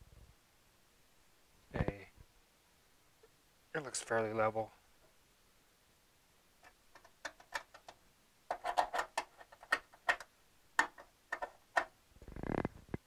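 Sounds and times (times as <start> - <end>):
pen clicks and taps: 6.6 - 11.9.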